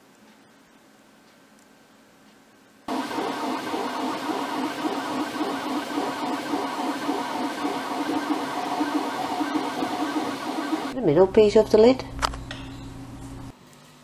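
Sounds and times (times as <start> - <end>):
cooling fan hiss: 1.8 - 14.0
stepper motors whining: 2.9 - 11.0.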